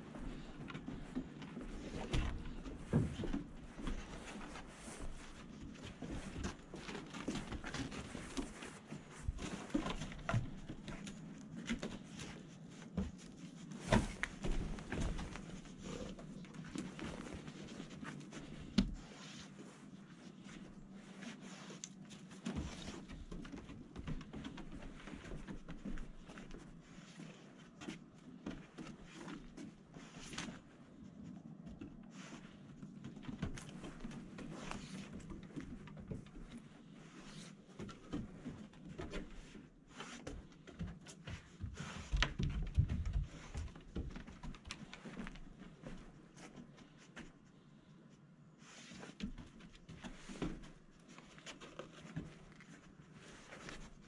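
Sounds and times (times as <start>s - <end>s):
shuffling footsteps: 0.0s - 47.6s.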